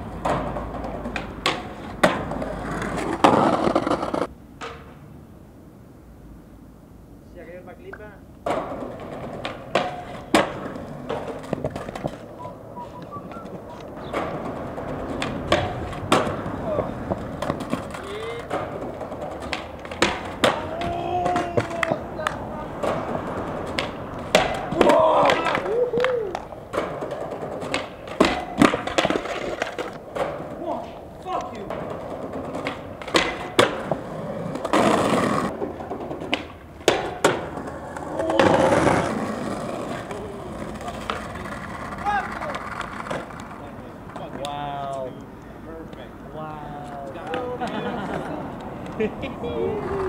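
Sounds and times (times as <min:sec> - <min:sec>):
skateboard clacks and slaps: 0:00.0 - 0:05.0, 0:08.4 - 0:44.8, 0:46.8 - 0:50.0
skateboard wheels rolling on concrete: 0:00.0 - 0:50.0.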